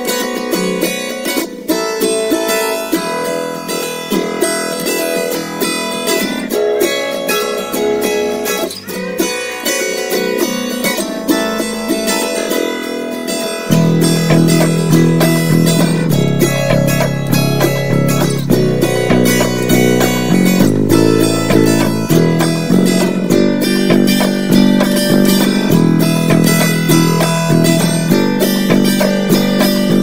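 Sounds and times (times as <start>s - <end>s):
acoustic guitar music: 0.0s - 30.0s
low musical part: 13.7s - 30.0s.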